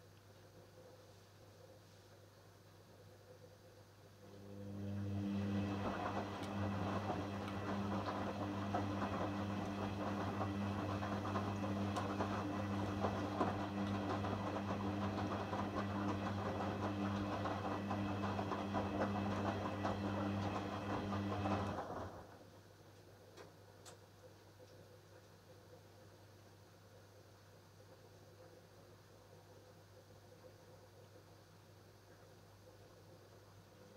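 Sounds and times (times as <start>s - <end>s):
washing machine motor hum: 4.1s - 22.8s.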